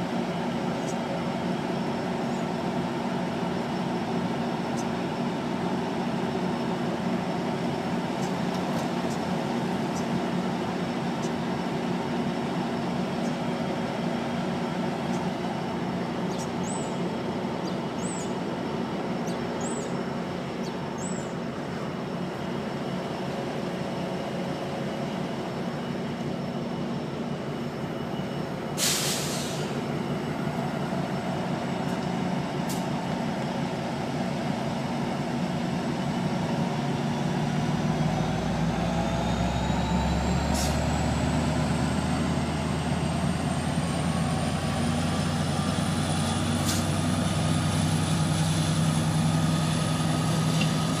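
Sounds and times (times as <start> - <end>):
diesel locomotive engine rumbling: 0.0 - 51.0
air hiss burst: 28.8 - 29.8.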